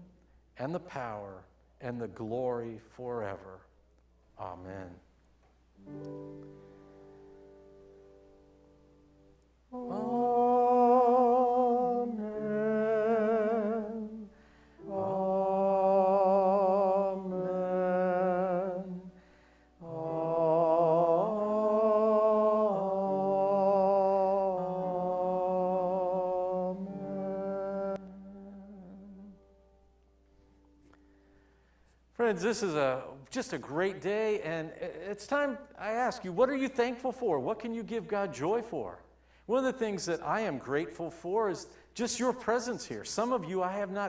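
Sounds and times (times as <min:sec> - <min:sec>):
choir singing amen: 0:09.7 - 0:19.1, 0:19.8 - 0:29.3.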